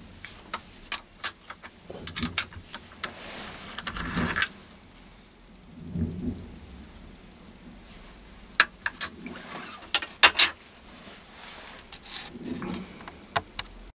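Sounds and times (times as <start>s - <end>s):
metal tools clinking on steel: 3.8s - 4.5s, 9.9s - 10.8s
metallic ring: 10.2s - 10.8s.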